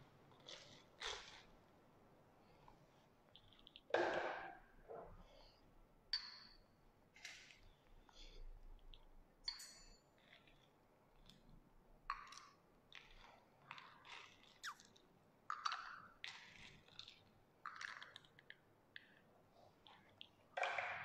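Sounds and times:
spoon stirring in a glass: 0:09.0 - 0:11.6.

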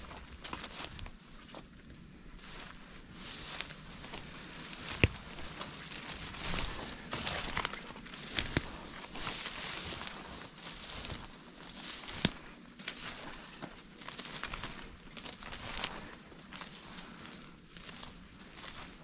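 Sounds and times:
footsteps through dry leaves: 0:00.0 - 0:19.0
twigs snapping: 0:04.8 - 0:10.2, 0:11.0 - 0:13.3, 0:14.0 - 0:16.0.

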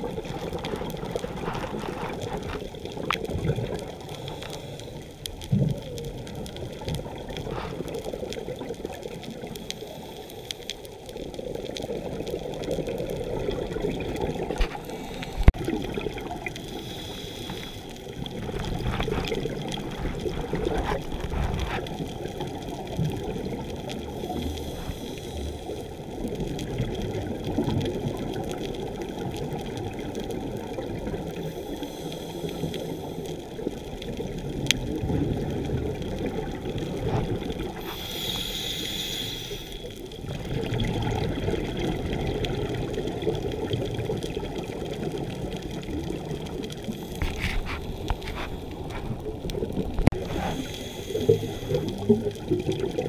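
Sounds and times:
scuba exhalation bubbles: 0:00.0 - 0:04.2, 0:11.4 - 0:16.7, 0:18.1 - 0:32.0, 0:33.7 - 0:38.2, 0:40.1 - 0:53.0.

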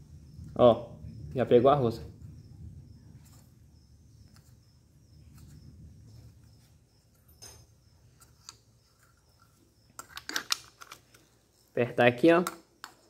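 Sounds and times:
low steady hum: 0:00.0 - 0:13.0
metal parts clicking and clinking: 0:10.0 - 0:11.4.

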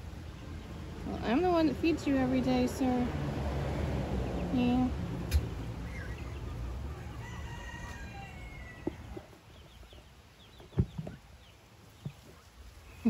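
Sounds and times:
rooster crowing: 0:06.9 - 0:09.2.

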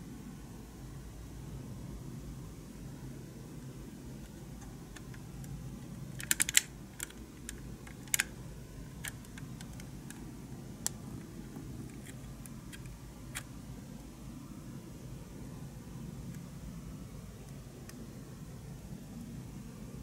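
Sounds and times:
steady low hum: 0:00.0 - 0:20.0
small plastic clicks: 0:04.2 - 0:13.5.

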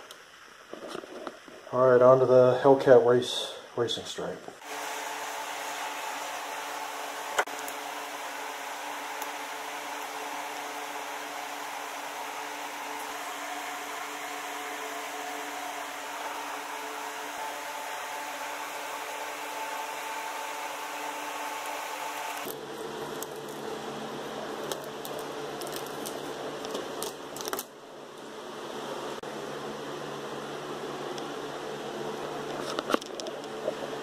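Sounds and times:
fan whirring: 0:04.6 - 0:34.0
transfer tape crackling: 0:24.6 - 0:27.7.

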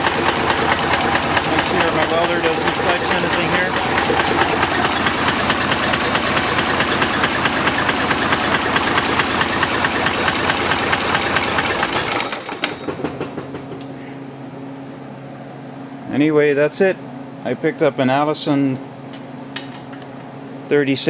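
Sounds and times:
engine knock: 0:00.0 - 0:13.8
diesel engine running: 0:00.0 - 0:14.6.

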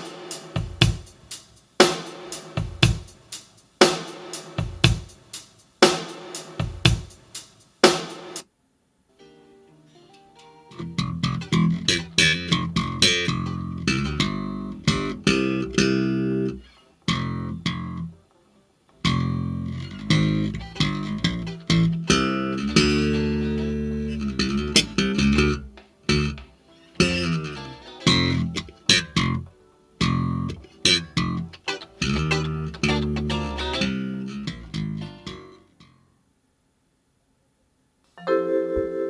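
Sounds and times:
plucked guitar over bass: 0:10.6 - 0:18.2, 0:19.0 - 0:36.0.

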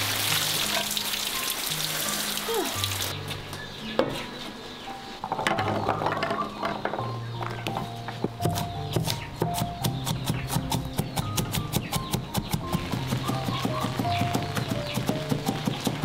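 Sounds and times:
water running and splashing: 0:00.0 - 0:03.2
soft background music: 0:00.0 - 0:16.0.

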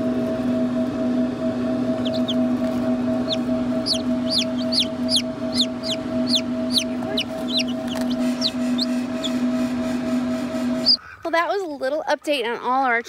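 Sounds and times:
steady low hum: 0:00.0 - 0:13.0
chicks peeping: 0:01.9 - 0:09.8, 0:10.6 - 0:11.5.

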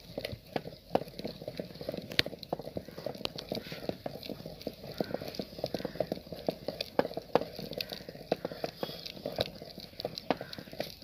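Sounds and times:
wooden masher knocking on a pot: 0:02.5 - 0:11.0.

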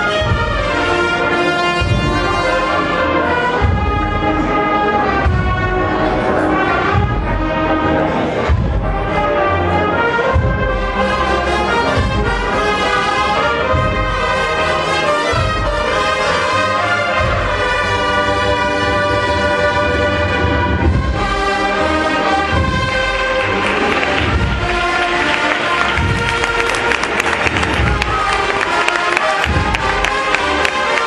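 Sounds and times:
brass band playing march: 0:00.0 - 0:31.0
low drum beats: 0:00.0 - 0:31.0.

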